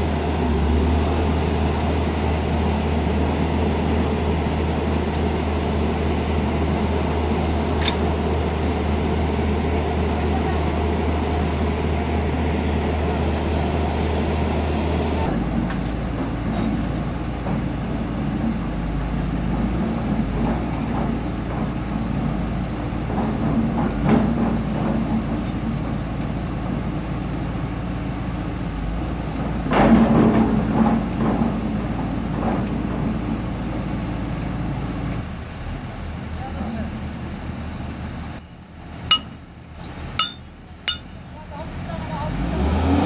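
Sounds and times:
diesel engines running under load: 0:00.0 - 0:43.0
metal knocks: 0:39.1 - 0:39.4, 0:40.2 - 0:41.1.

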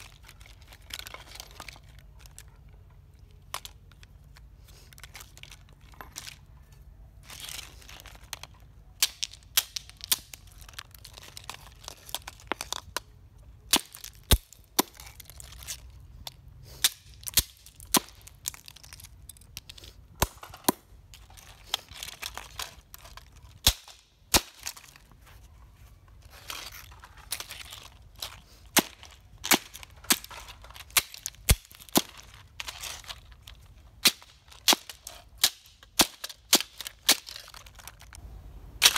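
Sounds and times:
plastic pieces rattling: 0:00.0 - 0:06.5, 0:07.2 - 0:25.1, 0:26.2 - 0:38.2.

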